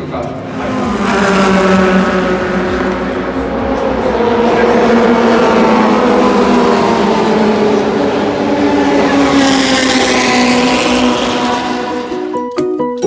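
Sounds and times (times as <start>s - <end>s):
racing car engine passing by: 0.0s - 12.6s.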